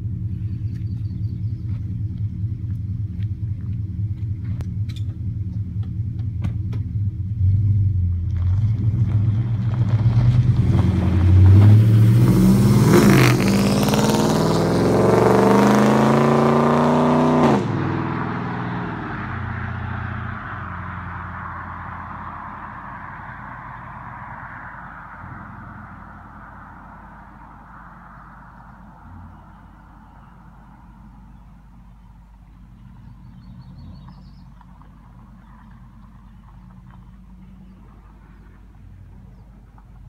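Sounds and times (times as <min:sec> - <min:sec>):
truck engine accelerating: 0:00.0 - 0:40.0.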